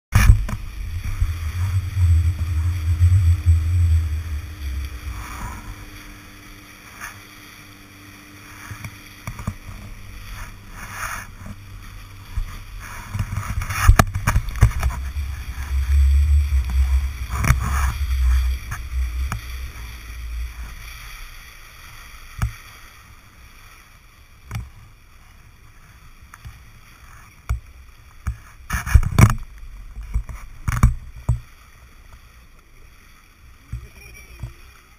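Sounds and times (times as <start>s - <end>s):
wind buffeting microphone: 0.1s - 22.5s
hiss of wind and water: 0.1s - 34.9s.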